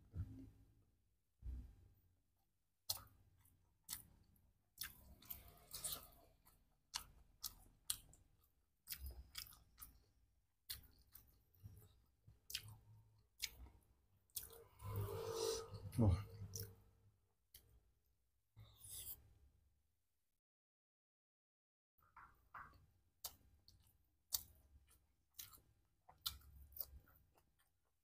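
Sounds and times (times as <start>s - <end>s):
person chewing food: 2.8s - 15.1s, 16.3s - 16.9s, 22.0s - 28.0s.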